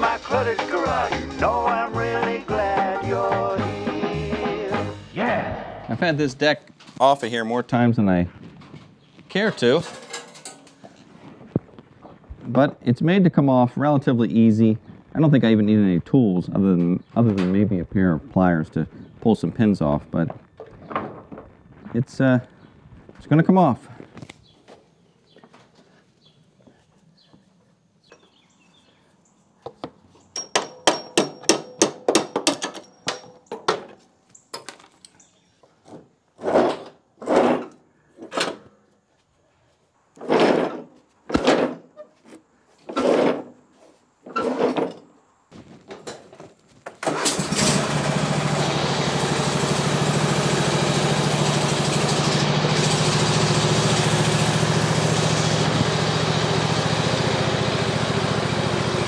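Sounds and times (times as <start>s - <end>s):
scraping noises: 8.1s - 12.5s, 36.4s - 38.3s, 40.2s - 45.0s
sharp metallic clicks and knocks: 9.4s - 10.9s, 29.7s - 35.2s
lawn tractor engine running: 47.0s - 59.0s.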